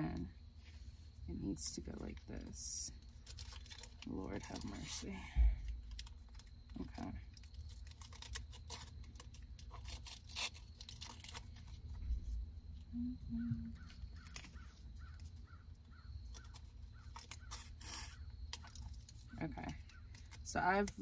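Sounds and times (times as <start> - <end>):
straps rustling and scraping: 3.0 - 12.5.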